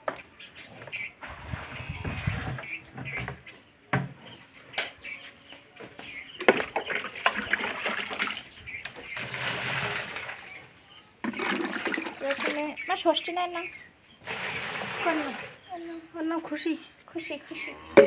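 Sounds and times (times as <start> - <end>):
water splashing in a trough: 6.4 - 10.6, 11.2 - 12.8, 14.2 - 15.6.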